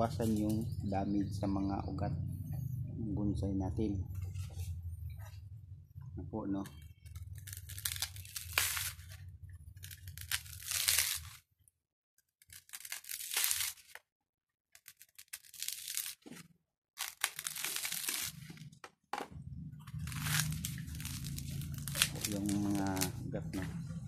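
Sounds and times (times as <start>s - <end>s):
coconut husk fibres tearing: 0.0s - 0.7s, 6.6s - 11.5s, 12.4s - 14.0s, 14.7s - 18.7s, 19.9s - 23.2s.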